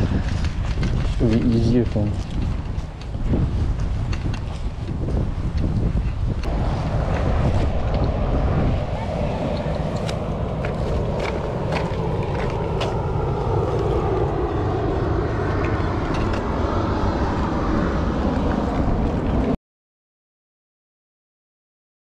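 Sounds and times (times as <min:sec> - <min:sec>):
bike clicks and rattles: 0:00.0 - 0:06.5, 0:15.6 - 0:16.5
wind rumbling on microphone: 0:00.0 - 0:19.6.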